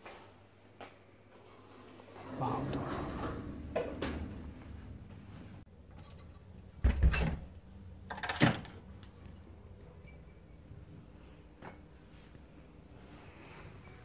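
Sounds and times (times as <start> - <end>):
door thudding shut: 6.8 - 7.4.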